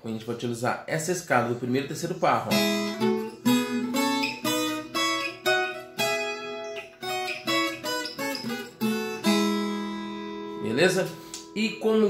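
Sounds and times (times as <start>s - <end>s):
plucked guitar notes: 2.5s - 12.0s.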